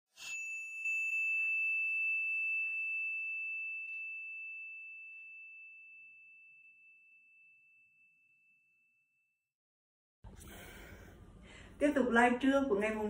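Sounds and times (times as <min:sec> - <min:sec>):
high bell-like chime: 0:00.1 - 0:09.3.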